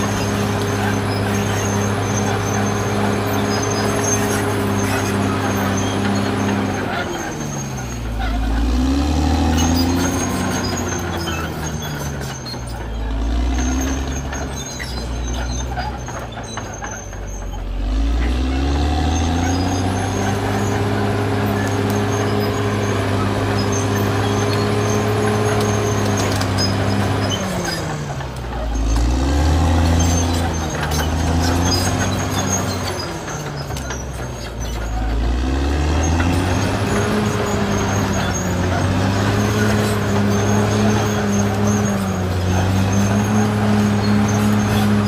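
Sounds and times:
bulldozer diesel engine revving: 0.0 - 45.0.

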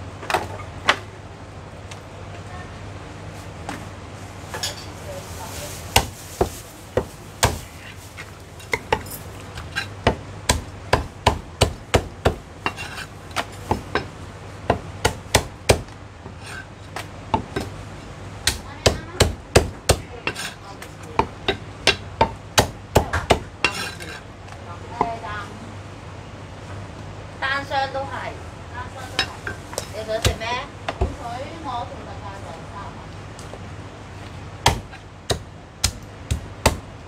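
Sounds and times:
cleaver chopping on wooden block: 6.0 - 7.6, 9.6 - 14.1, 14.7 - 15.9, 21.2 - 23.9, 34.6 - 36.9.

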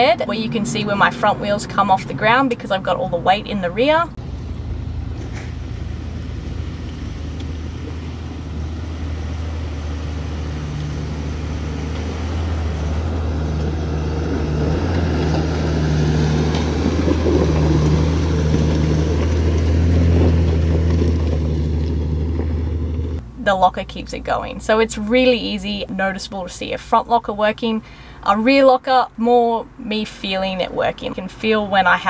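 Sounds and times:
diesel engine pulling under load: 0.0 - 23.4.

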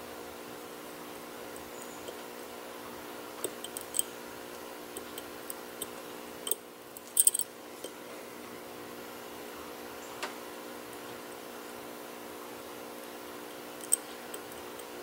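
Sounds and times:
lock pick clicking in lock: 5.0 - 7.4.

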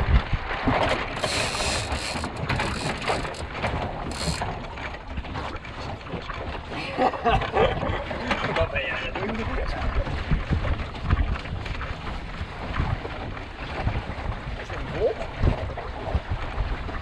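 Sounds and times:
ratchet clicking: 1.2 - 3.4, 4.1 - 4.4.

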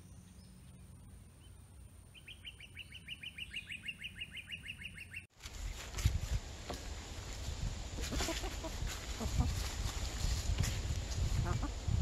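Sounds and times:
songbird trilling: 1.4 - 5.3
low rustling: 5.3 - 12.0.

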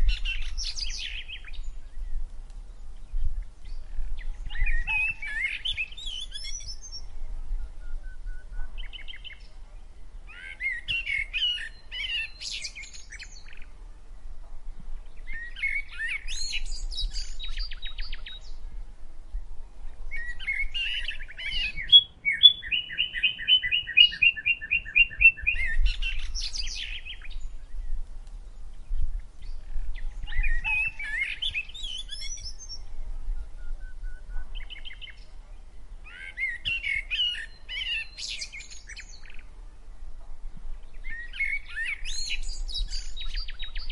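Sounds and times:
songbird warbling: 3.0 - 9.5, 10.2 - 13.7, 20.1 - 28.0, 28.9 - 35.3, 36.0 - 39.5, 40.8 - 43.9.

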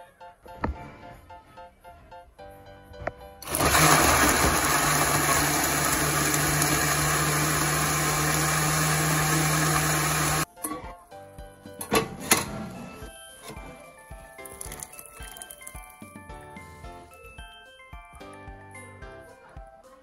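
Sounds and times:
blender running: 3.4 - 10.5.

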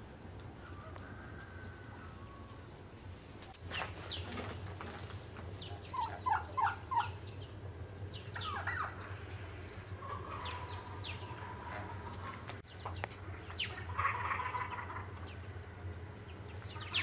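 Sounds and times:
low hum: 0.0 - 17.0
farmyard fowl calling: 0.6 - 2.8, 3.7 - 17.0
small birds chirping: 3.5 - 17.0.

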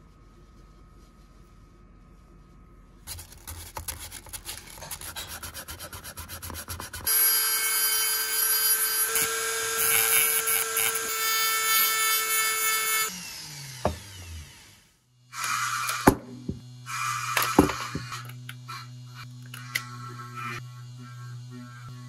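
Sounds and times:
electric tool grinding wood: 4.6 - 22.0.

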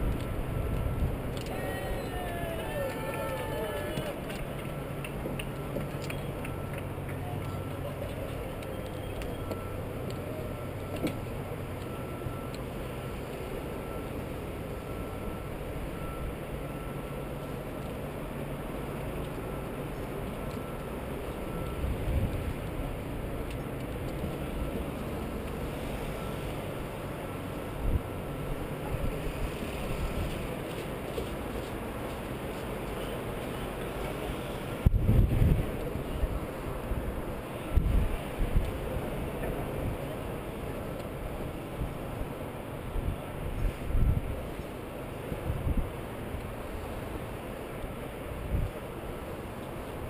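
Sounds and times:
wind rumble: 0.0 - 3.0, 34.8 - 40.0
wind buffeting microphone: 34.8 - 39.1, 43.0 - 44.5.

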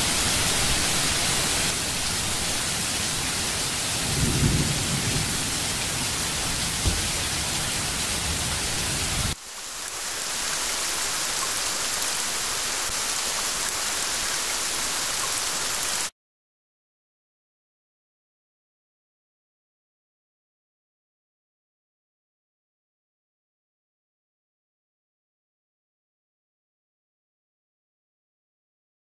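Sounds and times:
thunder rumbling: 0.0 - 9.4
heavy rain hissing: 0.0 - 16.1.

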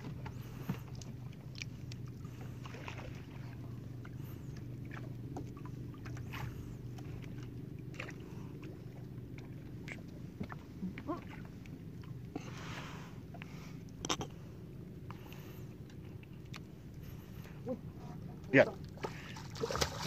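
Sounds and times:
water splashing: 0.0 - 13.1, 18.5 - 20.0
boat engine humming: 0.0 - 20.0.

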